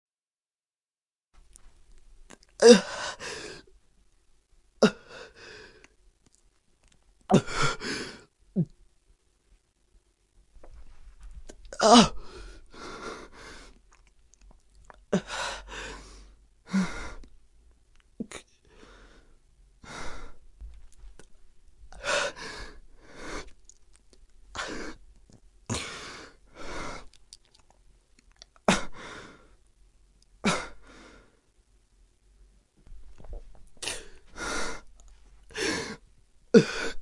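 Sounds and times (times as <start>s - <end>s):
person breathing hard: 2.6s - 3.7s, 4.8s - 6.0s, 7.3s - 8.3s, 11.8s - 13.8s, 15.1s - 17.3s, 18.6s - 20.5s, 21.9s - 23.6s, 24.5s - 25.0s, 25.7s - 27.2s, 28.6s - 29.6s, 30.4s - 31.5s, 33.8s - 37.0s
person moaning: 2.6s - 3.7s, 7.3s - 8.8s, 11.7s - 12.5s.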